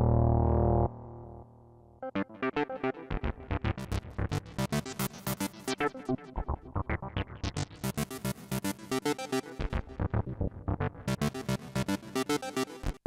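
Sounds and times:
low bass notes: 0:00.0 - 0:01.5.

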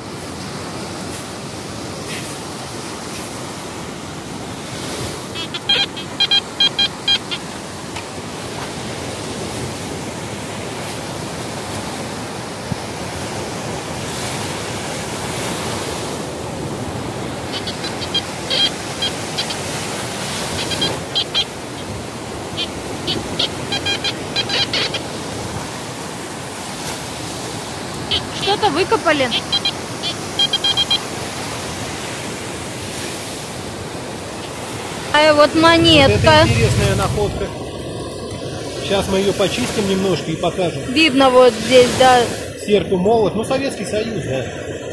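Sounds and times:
surf and wind hiss: 0:00.0 - 0:44.9
metal detector beeps: 0:05.3 - 0:07.6, 0:17.4 - 0:25.2, 0:28.0 - 0:31.2, 0:35.2 - 0:37.4.

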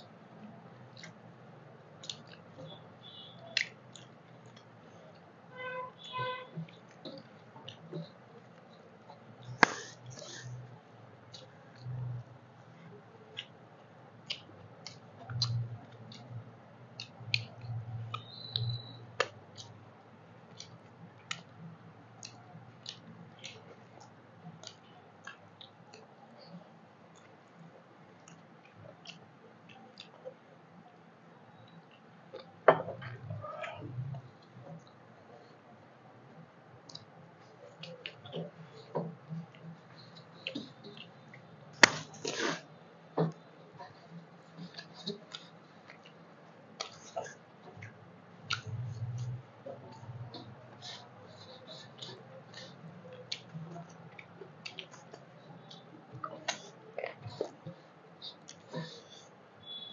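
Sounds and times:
chewing smacks: 0:00.7 - 0:01.2, 0:02.0 - 0:05.3, 0:13.3 - 0:13.6, 0:14.2 - 0:16.4, 0:17.0 - 0:19.8, 0:20.5 - 0:30.4, 0:36.8 - 0:42.7, 0:43.3 - 0:59.9
wet mouth clicks and lip smacks: 0:14.2 - 0:16.3, 0:46.8 - 0:49.4.

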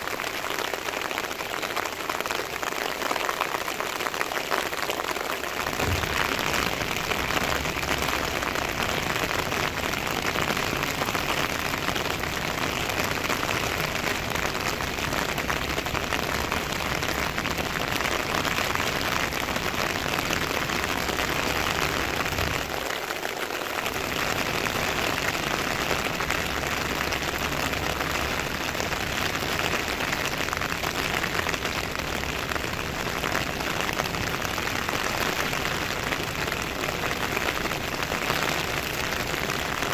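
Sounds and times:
heavy rain on road and vehicles: 0:00.0 - 0:39.9.

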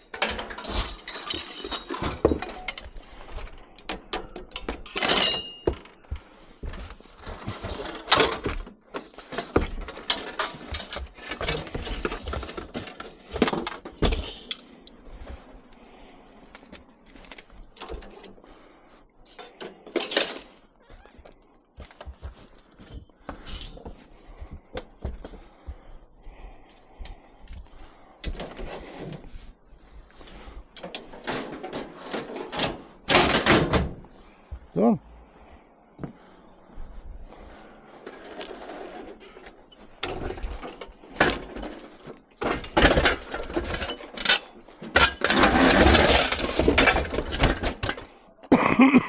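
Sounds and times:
scrap metal clattering: 0:00.0 - 0:03.2, 0:07.0 - 0:15.0, 0:30.1 - 0:34.0, 0:37.9 - 0:48.2.

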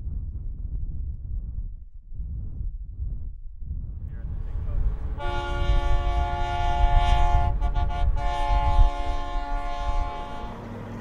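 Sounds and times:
low rumble: 0:00.0 - 0:10.6
train horn blasts: 0:05.2 - 0:10.8.

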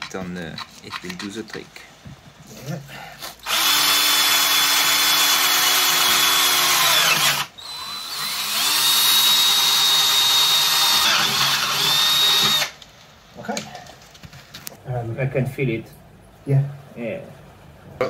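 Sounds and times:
cordless drill boring through metal: 0:03.3 - 0:12.8.

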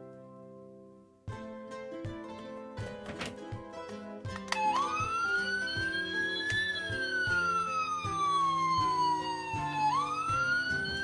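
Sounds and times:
background music: 0:00.0 - 0:11.0
toy siren wailing: 0:04.5 - 0:11.0.

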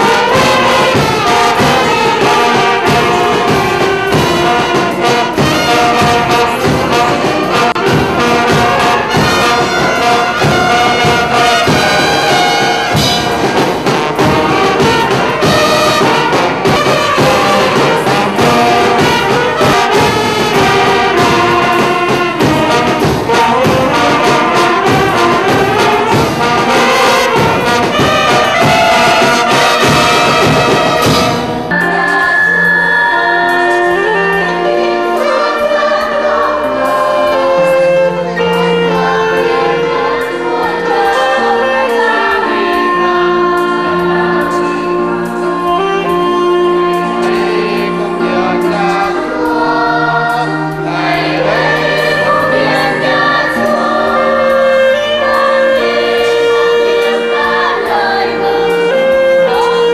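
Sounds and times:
bass drum: 0:00.0 - 0:31.8
wind band playing: 0:00.0 - 0:59.9.

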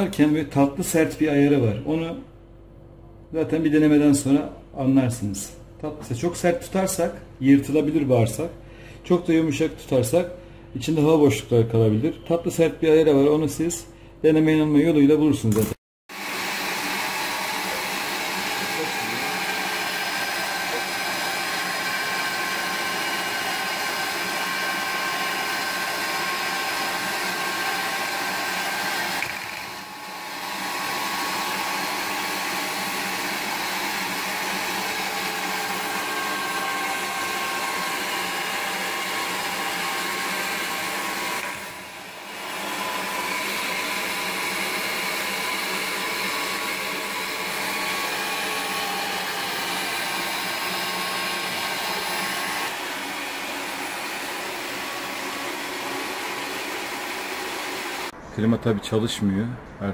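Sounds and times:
electric meat grinder running: 0:16.1 - 0:58.1.

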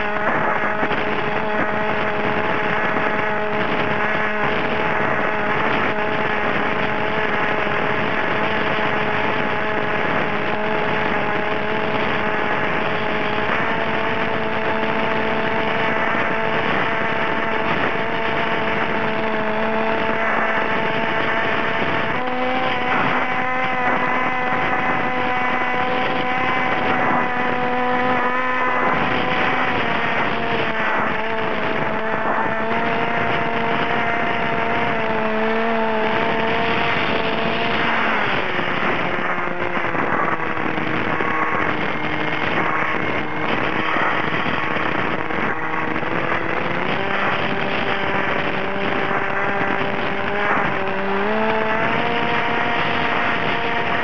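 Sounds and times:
model aircraft motor drone: 0:00.0 - 0:54.0.

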